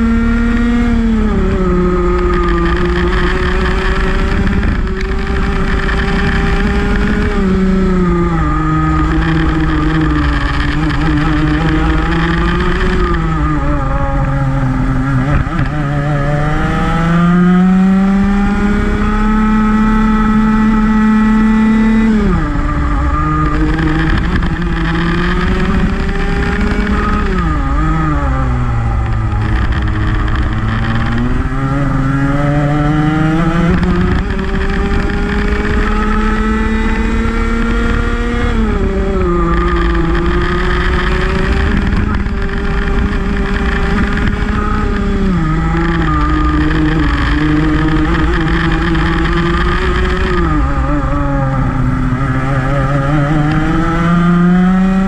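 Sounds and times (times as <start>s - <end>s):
kart engine racing: 0.0s - 55.0s.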